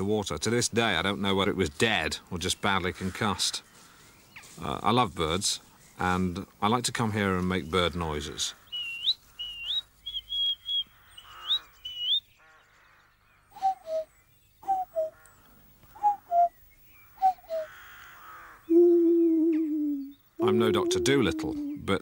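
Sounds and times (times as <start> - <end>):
man imitating bird calls: 13.6 - 15.2, 15.9 - 17.8, 18.6 - 22.0.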